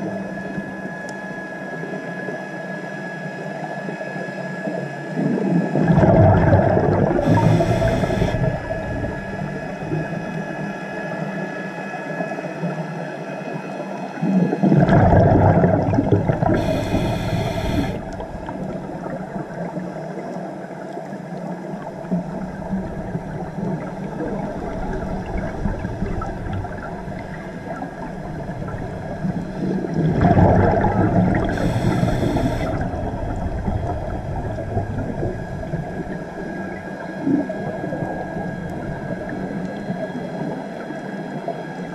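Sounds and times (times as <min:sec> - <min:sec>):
underwater background: 0:00.0 - 0:41.9
exhaled bubbles rumbling: 0:04.7 - 0:11.3, 0:14.2 - 0:41.9
regulator inhalation hiss: 0:07.2 - 0:10.2, 0:16.4 - 0:18.1, 0:31.3 - 0:32.8.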